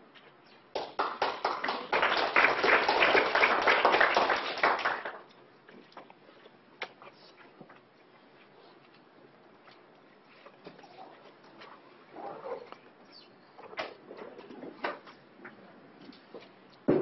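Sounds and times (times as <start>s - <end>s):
audience clapping: 0.7s - 5.3s.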